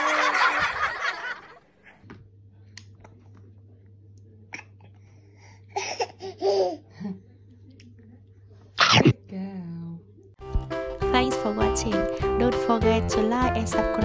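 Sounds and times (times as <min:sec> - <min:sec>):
baby babbling: 0:05.8 - 0:06.8.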